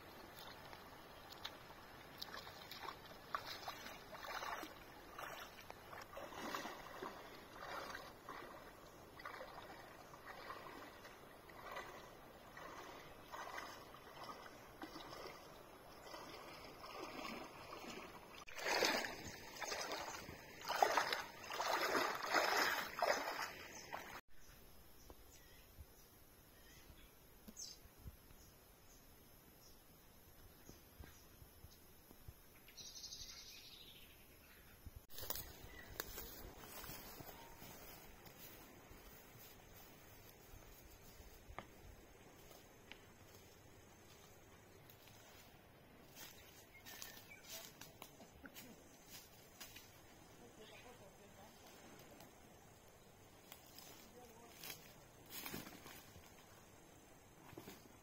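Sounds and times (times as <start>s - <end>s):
water splashing in strokes: 0.1s - 24.2s.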